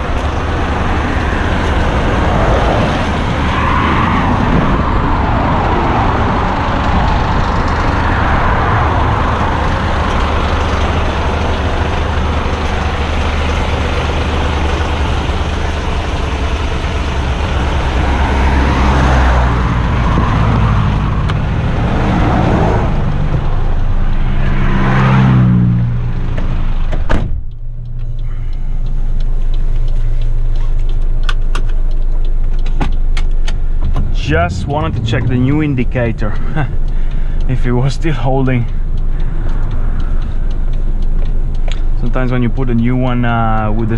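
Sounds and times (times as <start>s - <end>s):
truck diesel engine idling: 0.0s - 3.5s, 6.2s - 25.0s, 26.0s - 43.9s
traffic on a wet road: 0.0s - 43.9s
cab door slamming: 26.9s - 27.5s.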